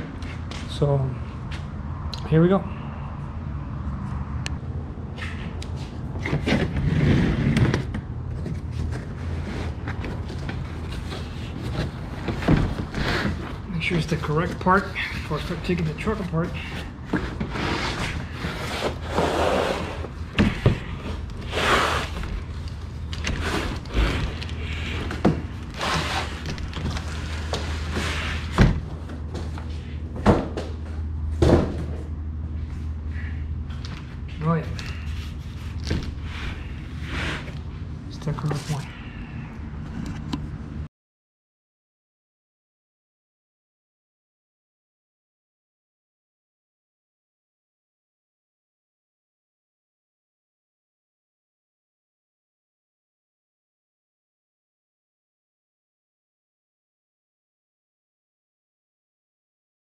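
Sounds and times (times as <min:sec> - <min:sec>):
cardboard scraping and rustling: 0:06.3 - 0:22.6, 0:23.2 - 0:29.4.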